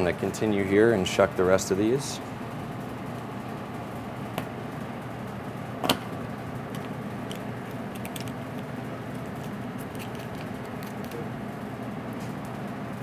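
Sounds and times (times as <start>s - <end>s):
kitchen ventilation hum: 0.0s - 13.0s.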